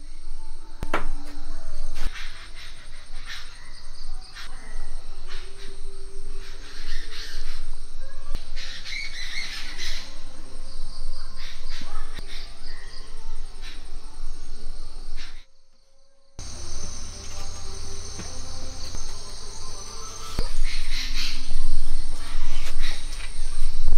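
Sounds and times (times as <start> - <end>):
crickets droning: 0.0 - 23.9
birds chirping: 2.0 - 15.5, 16.4 - 23.9.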